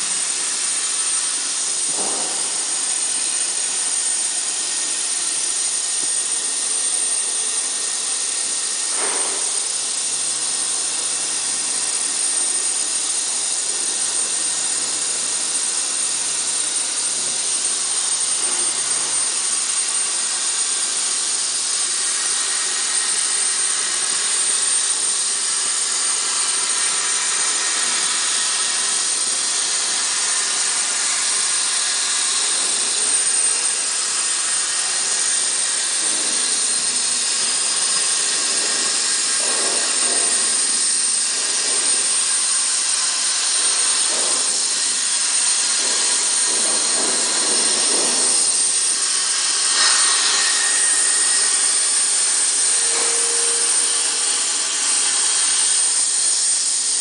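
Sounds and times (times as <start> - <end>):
plasma torch hissing: 0.0 - 57.0
high whine: 44.0 - 54.8.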